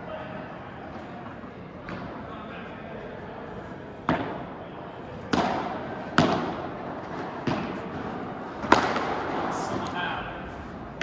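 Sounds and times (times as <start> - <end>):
padel ball hits: 8.6 - 9.4.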